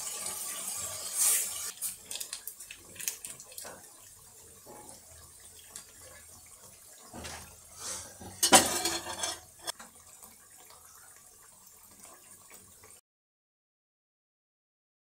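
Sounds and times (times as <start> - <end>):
dishes clinking: 7.1 - 9.8.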